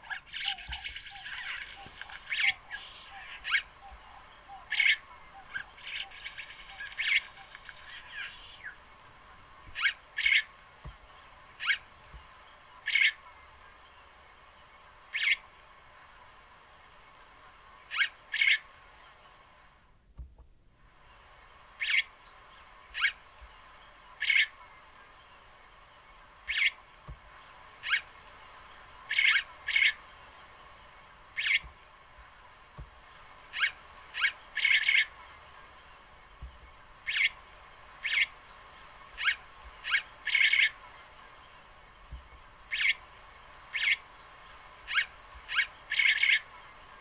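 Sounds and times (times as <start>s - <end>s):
bird calling sharply: 0.0s - 8.8s, 31.4s - 31.7s, 42.7s - 43.0s, 44.9s - 46.4s
faint steady background noise: 0.0s - 47.0s.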